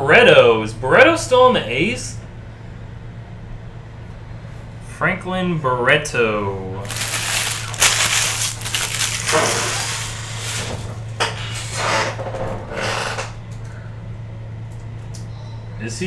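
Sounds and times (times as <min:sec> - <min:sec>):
low electrical hum: 0:00.0 - 0:16.0
foil wrappers crinkling: 0:06.8 - 0:10.9.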